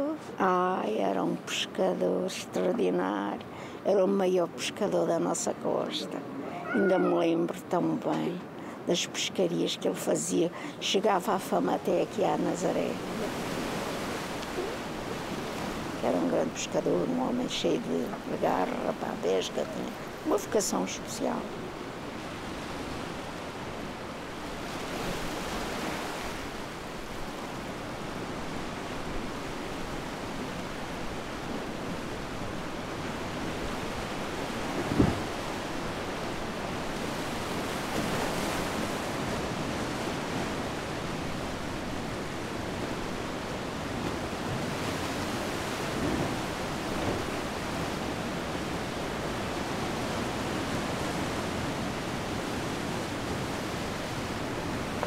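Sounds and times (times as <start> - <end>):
sea surf: 6.2 - 7.4, 11.4 - 55.0
wind on microphone: 28.2 - 55.0.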